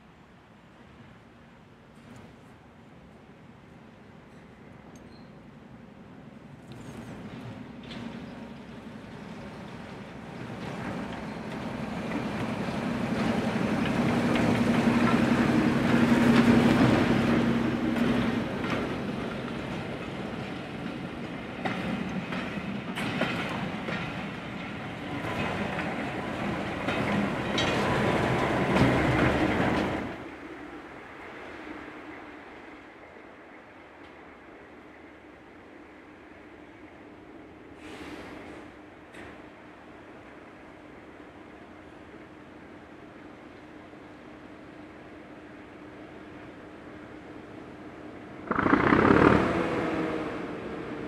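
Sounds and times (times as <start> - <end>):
train wheels clicking over rail joints: 6.7 - 30.2, 48.4 - 49.6
diesel locomotive engine running: 48.4 - 51.0.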